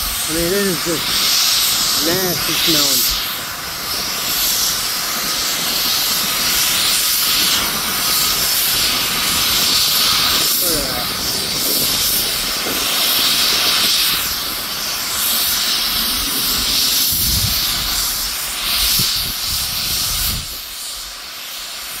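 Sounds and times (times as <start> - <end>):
vapor venting with loud hiss: 0.0 - 22.0.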